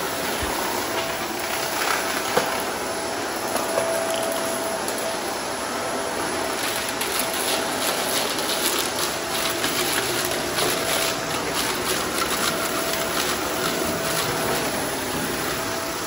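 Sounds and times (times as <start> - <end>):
vacuum cleaner running: 0.0 - 16.0
grit crackling in vacuum: 6.6 - 15.6.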